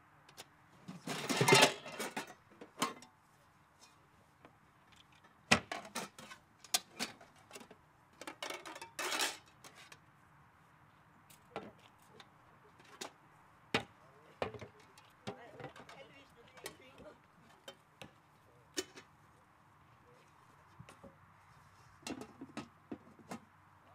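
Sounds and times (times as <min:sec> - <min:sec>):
metal pots clattering: 0:01.0 - 0:03.0, 0:08.2 - 0:09.4.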